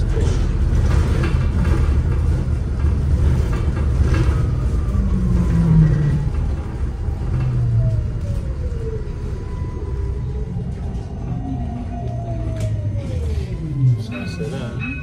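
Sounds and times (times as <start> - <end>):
bus rumbling: 0.0 - 15.0.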